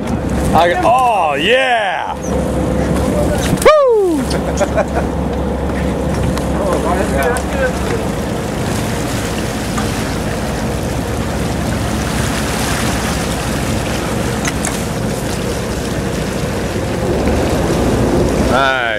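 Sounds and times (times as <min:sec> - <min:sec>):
low boat hum: 0:00.0 - 0:18.9
water splashing along hull: 0:00.0 - 0:18.9
wind on microphone: 0:10.2 - 0:18.9.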